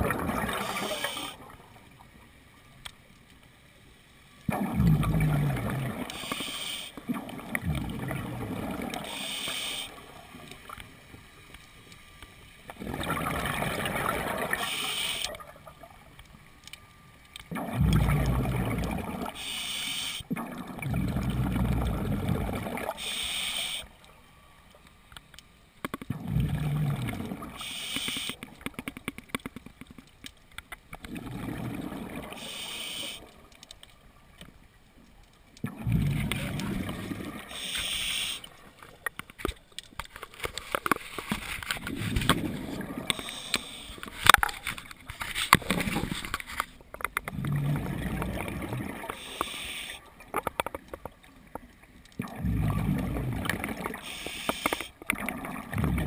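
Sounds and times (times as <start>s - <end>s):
exhaled bubbles rumbling: 0.0s - 1.6s, 4.5s - 6.1s, 7.1s - 9.1s, 12.7s - 14.7s, 17.5s - 19.4s, 20.3s - 23.0s, 26.1s - 27.6s, 31.0s - 32.4s, 35.6s - 37.5s, 41.8s - 43.2s, 47.2s - 49.2s, 52.2s - 54.0s, 55.1s - 56.0s
diver breathing through regulator: 6.1s - 7.0s, 9.0s - 10.0s, 14.6s - 15.3s, 19.3s - 20.3s, 22.9s - 23.9s, 27.6s - 28.4s, 32.3s - 33.3s, 37.4s - 38.5s, 43.1s - 44.1s, 49.1s - 50.0s, 54.0s - 55.0s.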